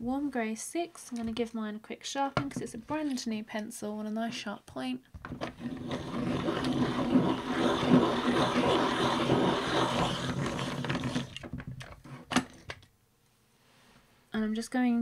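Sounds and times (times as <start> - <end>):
pencil sharpener grinding: 5.4 - 11.4.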